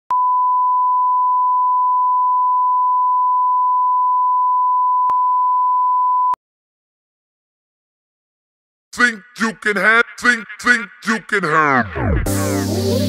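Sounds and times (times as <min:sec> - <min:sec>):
sine wave test tone: 0:00.1 - 0:06.4.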